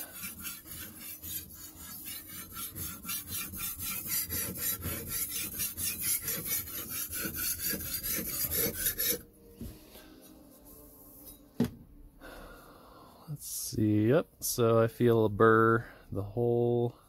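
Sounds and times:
knife grinding on sharpening stone: 0.0s - 9.3s.

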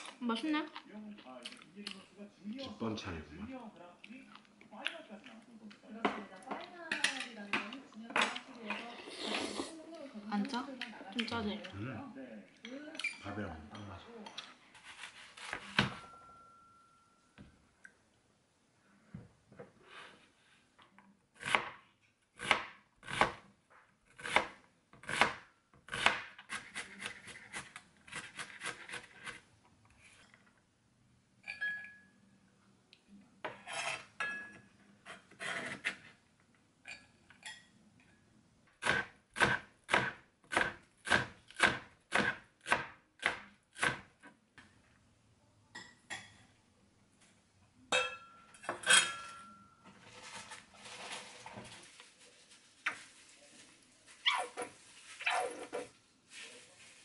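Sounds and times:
knife chopping on cutting board: 38.8s - 44.1s.

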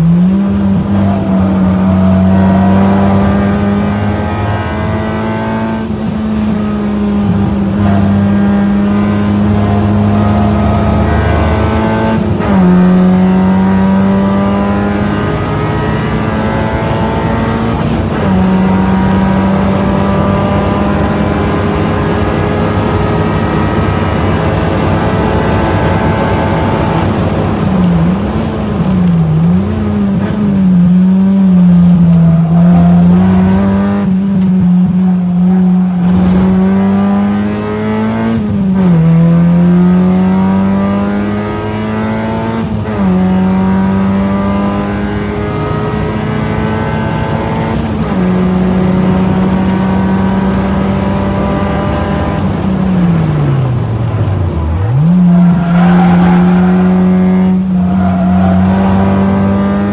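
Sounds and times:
car engine at high revs: 0.0s - 59.9s.

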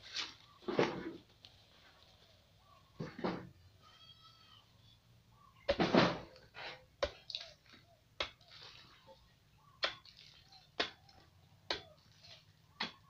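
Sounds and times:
digging bar striking hard earth: 5.7s - 6.3s.

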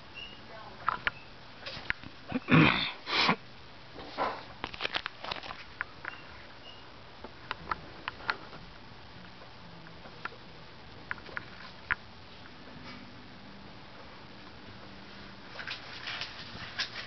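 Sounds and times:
plastic sleeves rustling: 4.1s - 5.9s, 15.5s - 17.0s.

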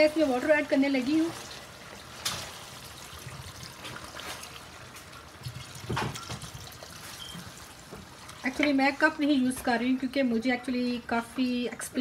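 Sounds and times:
water pouring into a metal pot: 0.9s - 8.6s.

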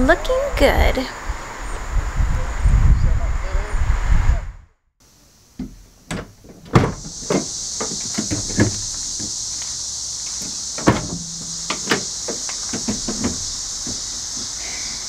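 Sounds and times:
low wind rumble: 0.0s - 4.8s, 5.8s - 15.0s
steady high hiss: 5.0s - 15.0s
sharp knocks and clicks: 5.6s - 9.7s, 10.3s - 14.5s.

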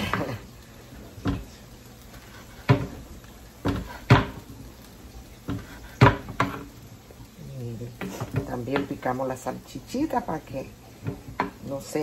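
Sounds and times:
knife chopping on cutting board: 2.5s - 3.0s, 3.6s - 4.4s, 5.5s - 6.7s.

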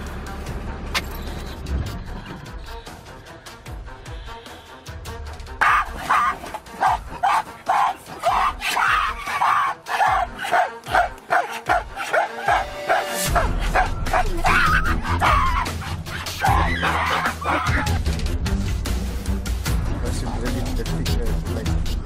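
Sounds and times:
deep musical bed: 4.7s - 22.0s
short barking calls: 5.6s - 17.9s.

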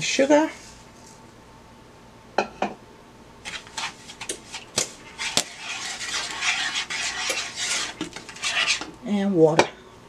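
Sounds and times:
wooden spoon scraping a pot: 3.4s - 9.0s.

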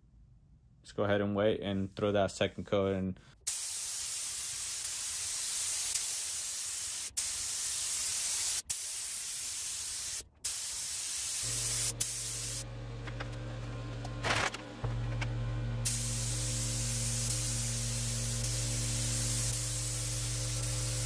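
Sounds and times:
paint spray gun hissing: 3.4s - 12.7s, 15.8s - 21.0s.

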